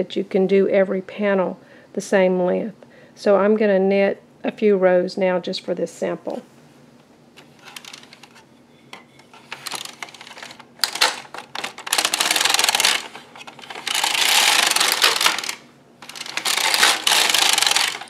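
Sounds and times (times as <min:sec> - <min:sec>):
knitting machine carriage clicking: 0:09.6 - 0:18.0.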